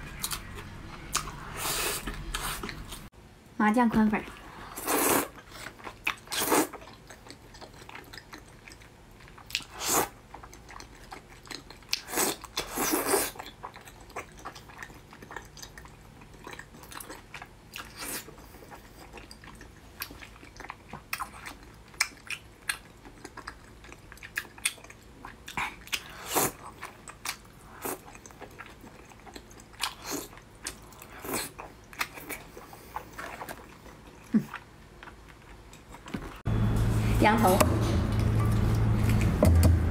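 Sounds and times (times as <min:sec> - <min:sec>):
person slurping noodles: 0:01.4 - 0:02.8, 0:04.7 - 0:05.5, 0:06.3 - 0:06.8
chewing with wet smacks: 0:05.4 - 0:36.4.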